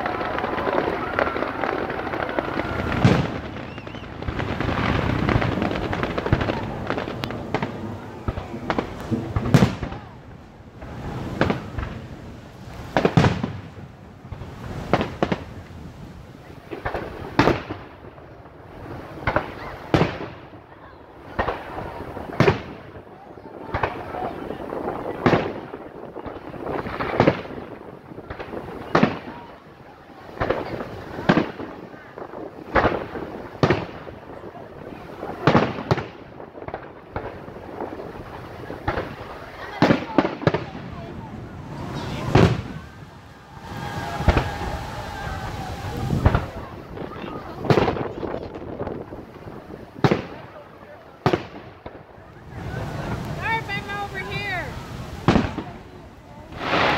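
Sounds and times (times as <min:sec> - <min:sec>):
firework shells bursting: 0:00.0 - 0:10.1, 0:41.6 - 0:50.6, 0:56.5 - 0:56.9
fireworks booming and crackling: 0:00.0 - 0:56.9.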